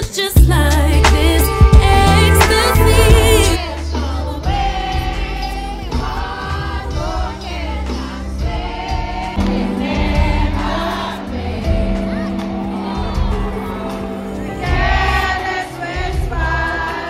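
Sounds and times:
woman singing: 0.0 - 7.4
recorded music: 0.0 - 17.0
live band music in an arena: 0.9 - 7.3, 8.4 - 15.3.

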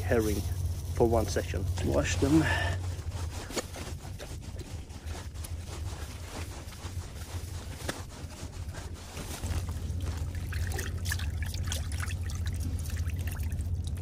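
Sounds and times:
low rumble: 0.0 - 14.0
fish swished in bucket of water: 9.4 - 14.0
water trickling: 9.6 - 14.0.

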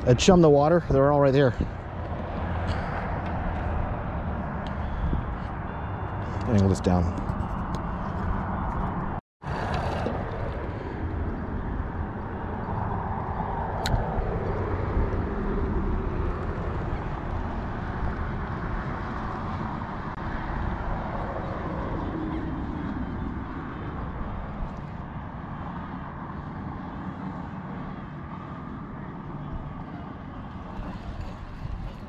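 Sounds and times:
road traffic passing: 0.0 - 32.0
wind on microphone: 1.4 - 6.3, 30.4 - 32.0.

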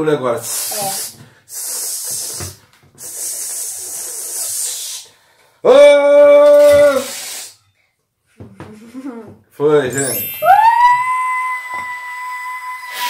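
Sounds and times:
aerosol can spraying: 0.4 - 5.1, 6.8 - 7.6.

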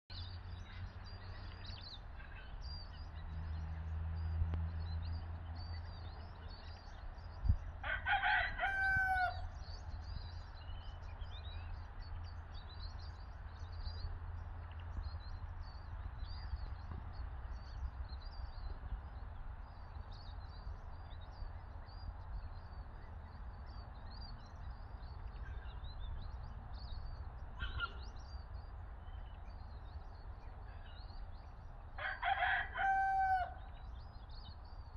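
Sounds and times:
small birds chirping: 0.1 - 34.9
rooster crowing: 7.8 - 9.6, 32.0 - 33.7.

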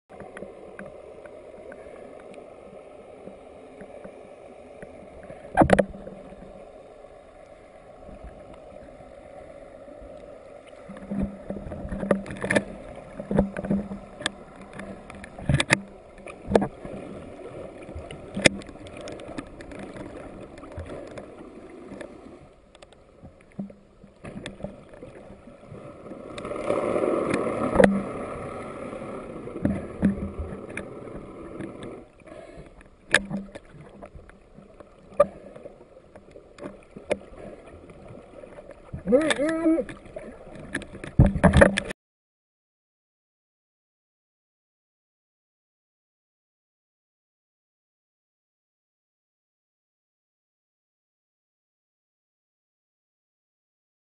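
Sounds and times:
rush of water: 0.1 - 42.0
sharp clicks and knocks: 10.9 - 16.7, 18.3 - 21.2, 32.8 - 34.4, 39.0 - 41.9.

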